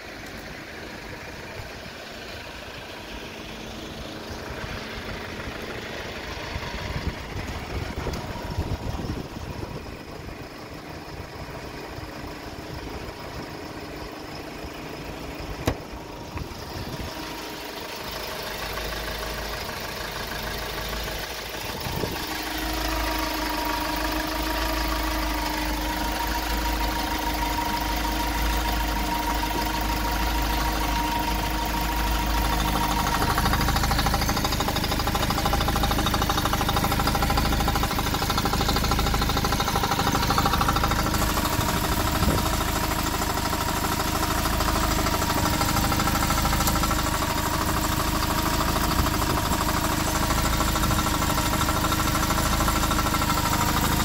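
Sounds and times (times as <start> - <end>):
diesel engine idling: 0.0 - 54.0
sharp click: 15.6 - 16.5.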